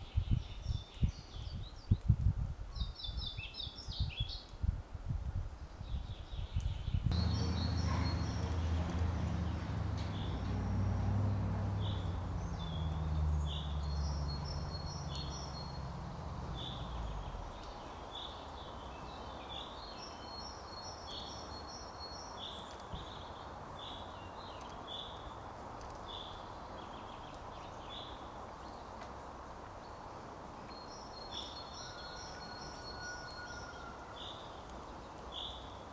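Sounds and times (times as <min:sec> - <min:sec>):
songbirds calling: 0:05.9 - 0:35.9
low droning hum: 0:07.1 - 0:17.4.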